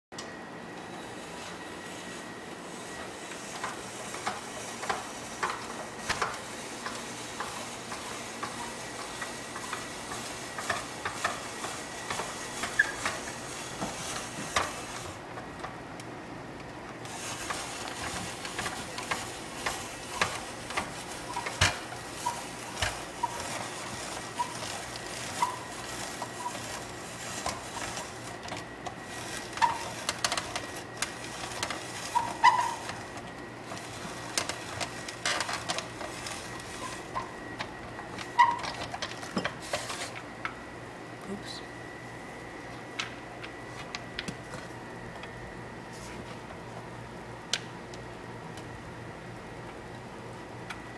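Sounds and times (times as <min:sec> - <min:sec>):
short squeaks: 0:12.6 - 0:13.2, 0:38.3 - 0:38.8.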